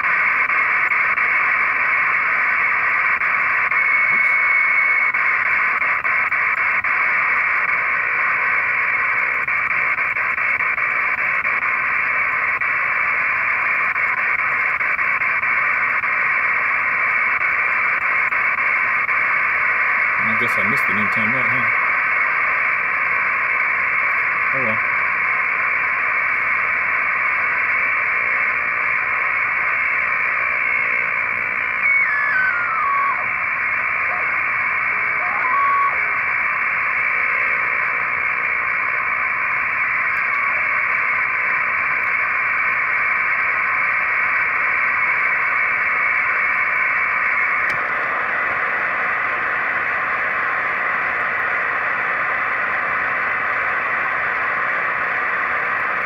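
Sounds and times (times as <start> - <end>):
radio static hiss: 0.0 - 56.0
radio whistle changing pitch: 2.4 - 5.8, 29.1 - 38.2.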